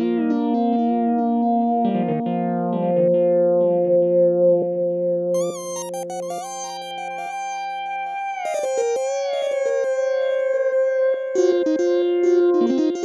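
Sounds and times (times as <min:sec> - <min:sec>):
synthesizer gliding chords: 0:05.4 - 0:13.0.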